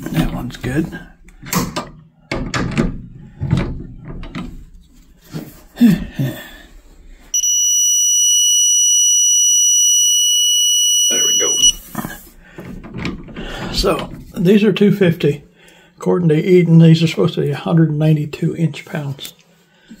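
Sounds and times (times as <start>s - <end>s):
high alarm beep: 7.4s - 11.8s.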